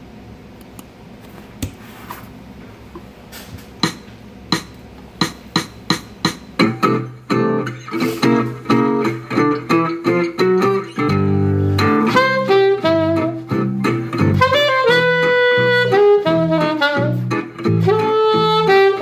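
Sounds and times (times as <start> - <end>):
guitar chords: 5.2 - 19.0
plucked guitar notes: 6.6 - 18.7.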